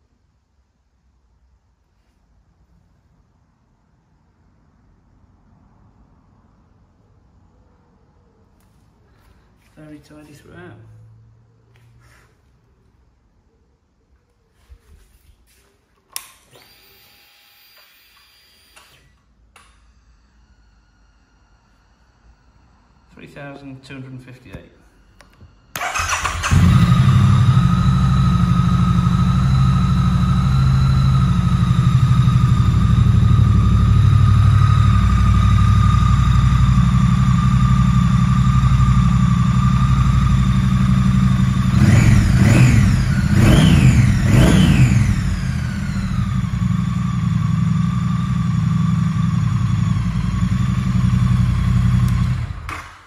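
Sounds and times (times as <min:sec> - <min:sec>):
electric starter cranking: 0:16.2 - 0:19.7, 0:25.2 - 0:33.0
engine revving: 0:25.7 - 0:53.0
motorcycle engine idling: 0:25.8 - 0:53.0.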